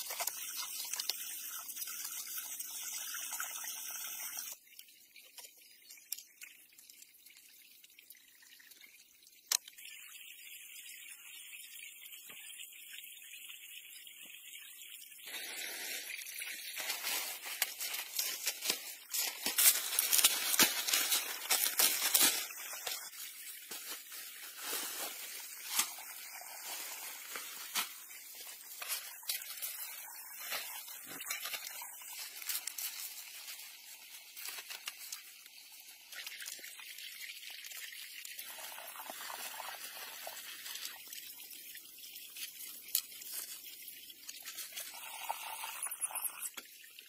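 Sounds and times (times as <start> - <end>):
palm fronds rustling: 16.8 - 23.0.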